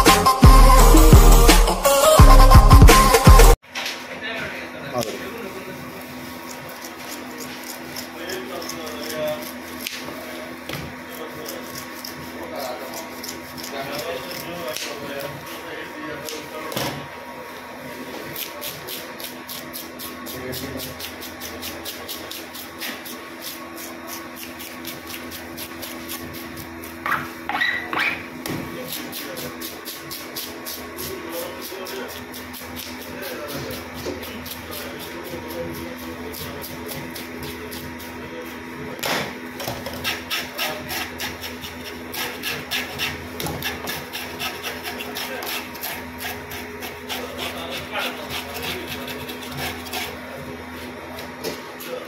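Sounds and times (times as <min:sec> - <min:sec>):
fish scaler scraping scales: 0:11.1 - 0:15.2, 0:18.3 - 0:38.2, 0:39.8 - 0:50.2.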